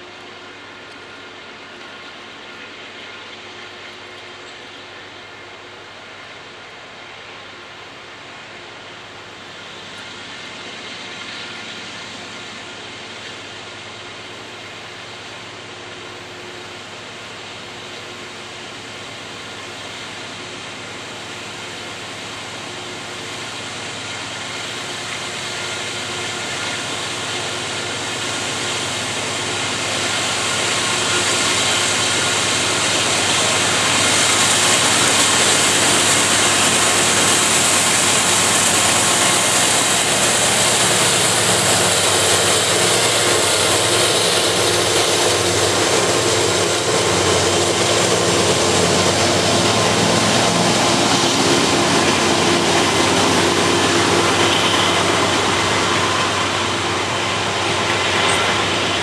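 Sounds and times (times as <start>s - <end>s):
diesel locomotive passing: 0.0s - 59.0s
freight cars rolling on rails: 0.0s - 59.0s.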